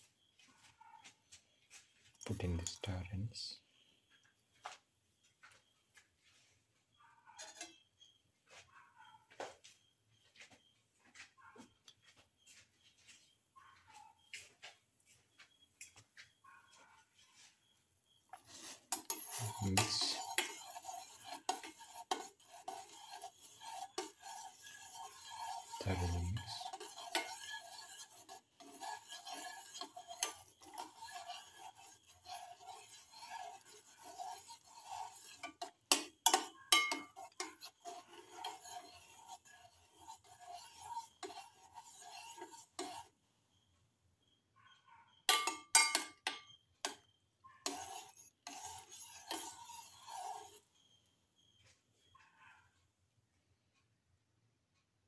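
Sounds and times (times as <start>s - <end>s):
spoon stirring in metal pan: 2.2s - 3.6s, 7.4s - 8.2s, 17.3s - 43.2s, 45.2s - 51.1s
spoon clinking on pan: 34.8s - 38.6s, 45.3s - 47.0s.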